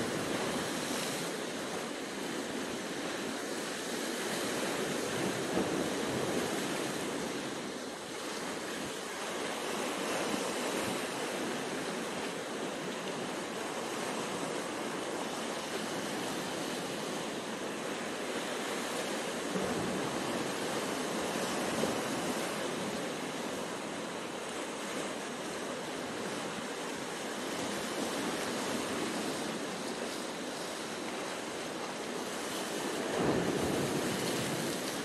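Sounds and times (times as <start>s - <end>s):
surf breaking over rocks: 17.6s - 35.0s.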